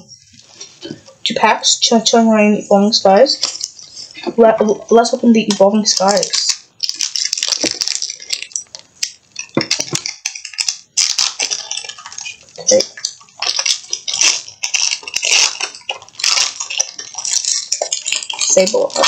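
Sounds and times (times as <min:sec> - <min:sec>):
foil wrapper crinkling and tearing: 0:03.4 - 0:04.0, 0:05.4 - 0:19.0
cards rustling out of pack: 0:05.4 - 0:19.0.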